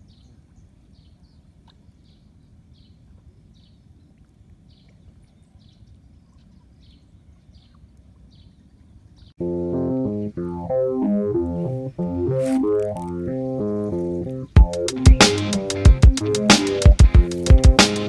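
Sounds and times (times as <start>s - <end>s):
bird chirping: 4.7s - 9.4s.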